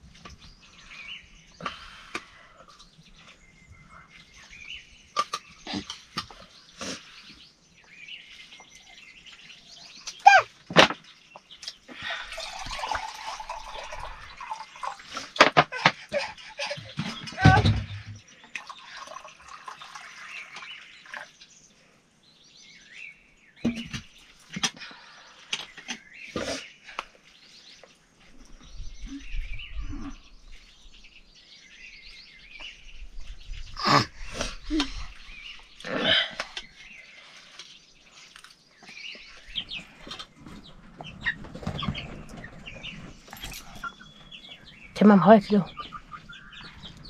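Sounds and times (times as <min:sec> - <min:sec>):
birds chirping: 0:00.0 - 0:47.0
chickens clucking: 0:39.5 - 0:44.8, 0:45.6 - 0:47.0.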